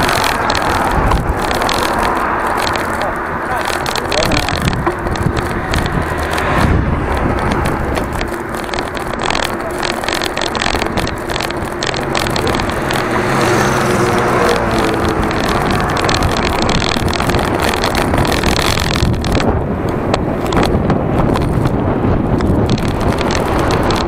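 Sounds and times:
scooter engine passing: 0.0s - 19.7s
road and traffic noise: 0.0s - 24.0s
wind buffeting microphone: 0.0s - 24.0s.

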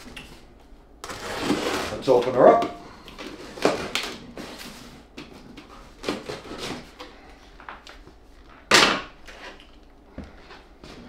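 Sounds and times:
cardboard rustling and scraping: 1.0s - 2.5s, 3.3s - 7.0s.

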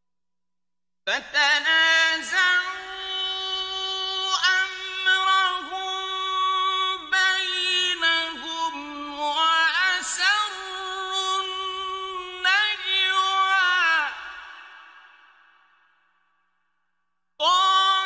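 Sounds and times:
man chanting melodically: 1.1s - 14.8s, 17.4s - 18.0s.

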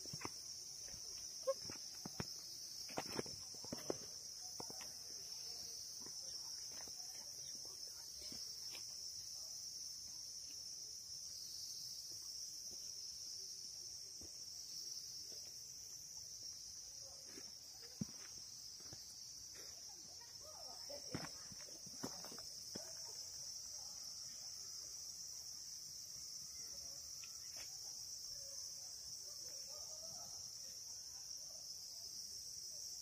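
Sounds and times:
faint footsteps on pavement: 0.0s - 5.2s, 17.2s - 20.4s, 21.0s - 23.2s
insects chirring: 0.0s - 33.0s.

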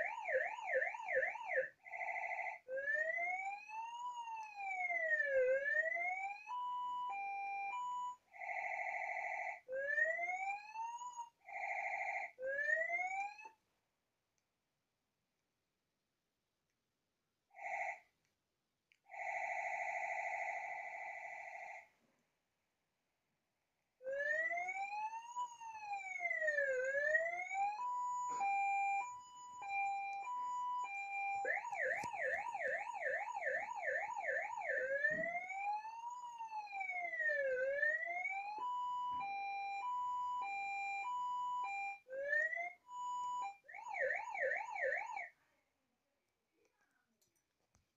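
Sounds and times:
electronic siren: 0.0s - 13.6s, 19.1s - 21.9s, 24.0s - 45.4s.

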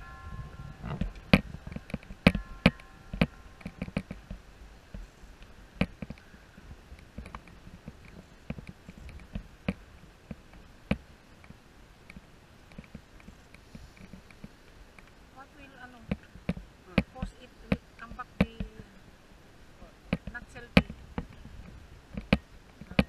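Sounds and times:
faint low rumble: 0.0s - 23.0s
sharp clicks and light knocks: 0.9s - 6.3s, 6.9s - 15.2s, 20.1s - 23.0s.

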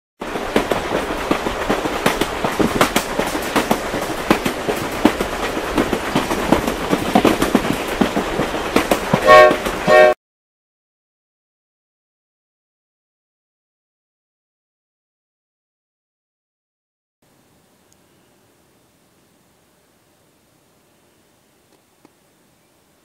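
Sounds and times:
train wheels clattering on rails: 0.2s - 10.2s
train whistle blasts: 9.2s - 10.2s.

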